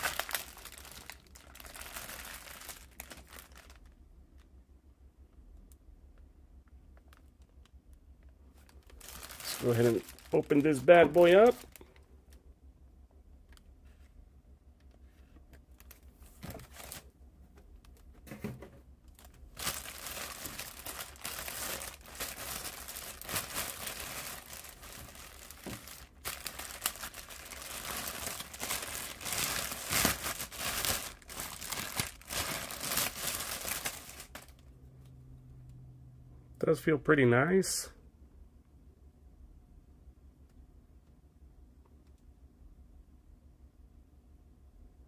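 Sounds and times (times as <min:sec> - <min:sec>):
packaging crinkling and tearing: 0:00.0 - 0:04.0, 0:08.6 - 0:12.0, 0:15.7 - 0:17.1, 0:19.1 - 0:34.6.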